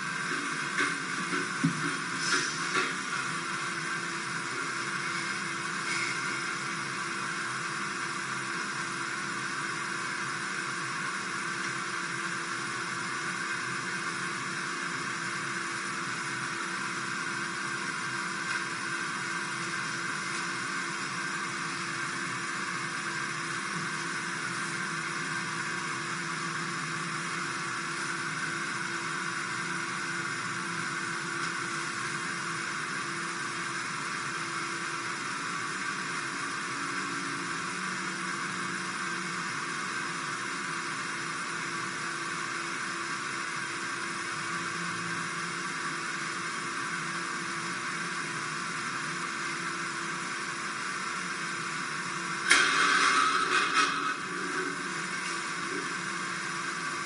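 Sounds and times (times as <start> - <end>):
steady whirring hiss: 0.0 - 8.0.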